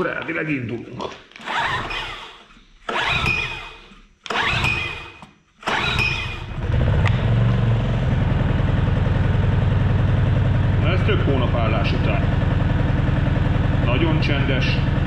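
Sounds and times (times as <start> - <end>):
recoil starter cord pulled: 1.3 - 7.4
generator engine running: 1.4 - 15.0.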